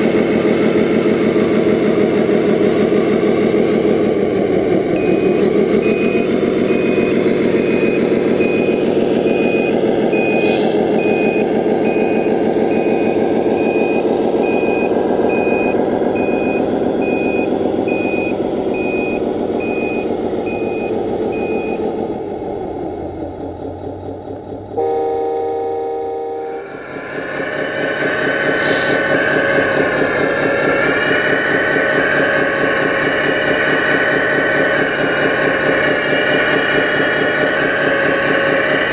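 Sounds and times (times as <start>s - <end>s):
diesel truck engine sound: 0.0s - 38.9s
engine sound with high whine: 0.0s - 38.9s
reversing beeps: 5.0s - 21.8s, 24.8s - 26.7s
steady electronic tone: 24.8s - 35.7s.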